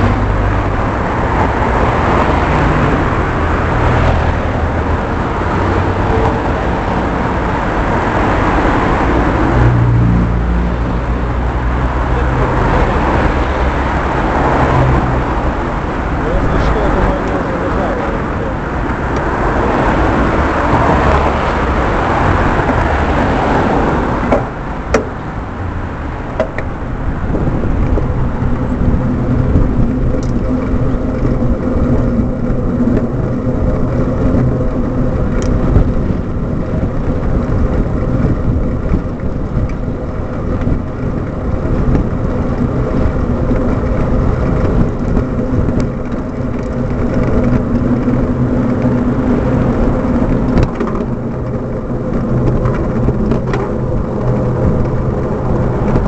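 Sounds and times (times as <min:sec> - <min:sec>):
road traffic passing: 0:00.0 - 0:56.0
wind noise on camera: 0:00.0 - 0:56.0
bicycle clicks and knocks: 0:24.2 - 0:25.3, 0:26.2 - 0:56.0.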